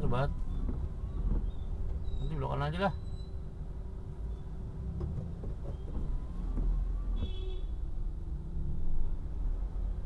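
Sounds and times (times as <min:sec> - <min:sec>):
car driving on wet road: 0:03.7 - 0:10.0.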